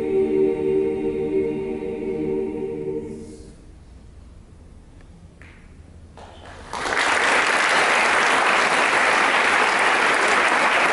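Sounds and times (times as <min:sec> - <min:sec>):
audience applause: 0:06.4 - 0:10.9.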